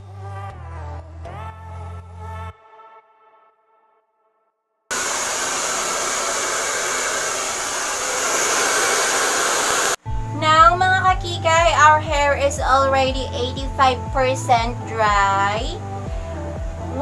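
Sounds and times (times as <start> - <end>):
hair dryer blowing: 4.9 - 10.0.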